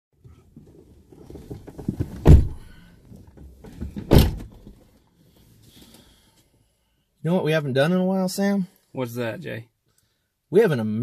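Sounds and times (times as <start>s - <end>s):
vehicle doors slamming: 2.0s - 2.8s, 3.7s - 4.8s.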